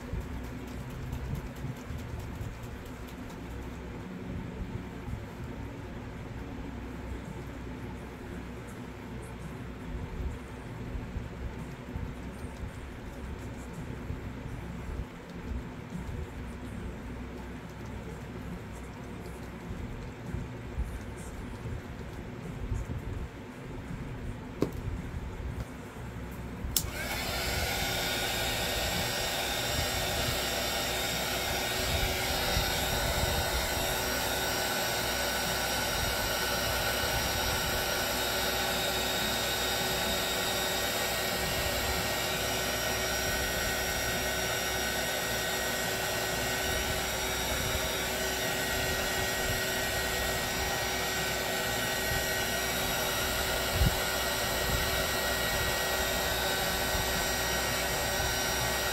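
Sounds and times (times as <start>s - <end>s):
heat gun blowing air: 26.8s - 58.9s.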